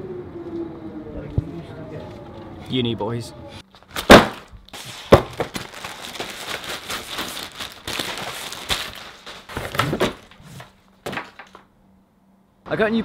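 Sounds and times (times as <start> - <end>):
plastic wrapping crinkling: 3.8 - 10.4
box knocks: 5.1 - 5.6.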